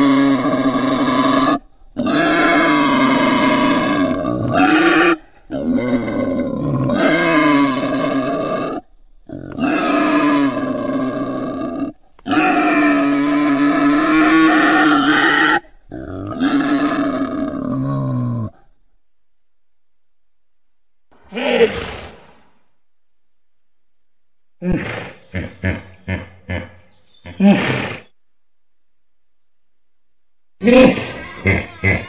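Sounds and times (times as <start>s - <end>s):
wild boar grunting: 0.0s - 18.7s.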